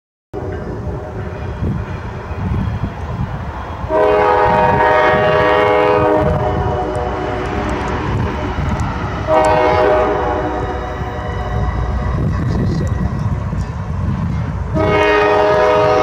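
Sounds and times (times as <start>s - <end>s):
locomotive air horn: 3.9s - 7.5s, 9.3s - 12.7s, 14.4s - 16.0s
low rumble: 6.1s - 14.8s.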